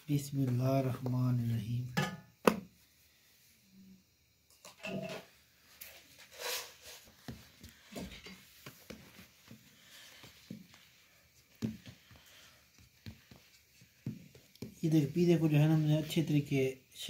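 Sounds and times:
hands patting dough in metal pan: 0:07.0 - 0:16.4.

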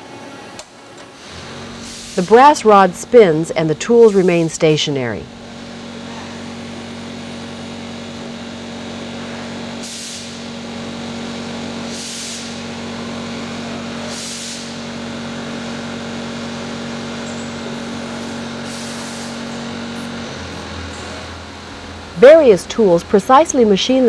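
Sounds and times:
lathe humming: 0:00.8 - 0:09.8, 0:14.7 - 0:24.0.

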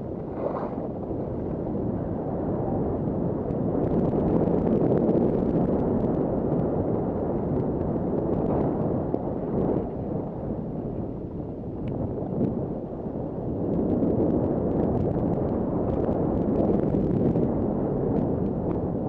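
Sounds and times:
wind rushing over microphone: 0:00.0 - 0:19.0
skis sliding over snow: 0:00.2 - 0:00.8.

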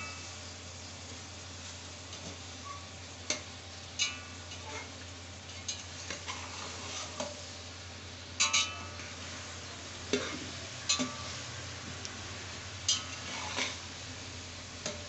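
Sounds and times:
food sizzling: 0:00.0 - 0:15.0
metal spatula scraping a pot: 0:04.0 - 0:07.5, 0:12.8 - 0:13.9.

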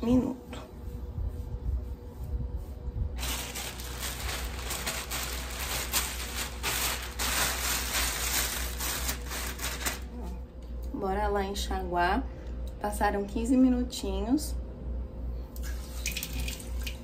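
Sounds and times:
steady low hum: 0:00.0 - 0:17.0
plastic hair cap crinkling: 0:03.2 - 0:10.1.

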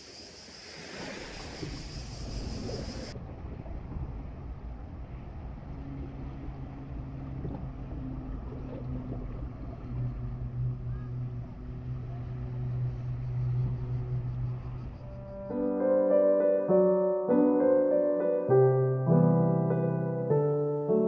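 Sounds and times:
sea wash: 0:00.0 - 0:15.1
engine drone: 0:00.0 - 0:15.6
wind: 0:00.0 - 0:21.0.

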